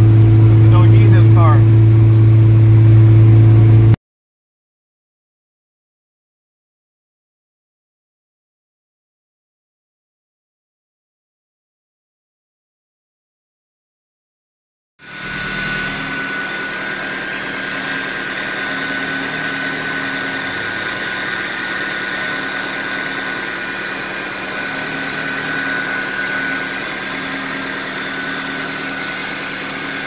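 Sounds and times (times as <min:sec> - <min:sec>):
car engine idling: 0:00.0 - 0:03.9, 0:15.1 - 0:30.0
high whine: 0:00.0 - 0:04.0, 0:15.0 - 0:30.0.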